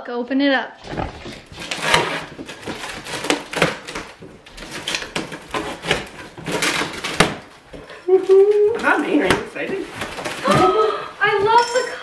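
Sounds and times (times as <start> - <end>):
tape and cardboard crackling: 0.8 - 11.8
knife slicing packing tape: 1.5 - 7.5.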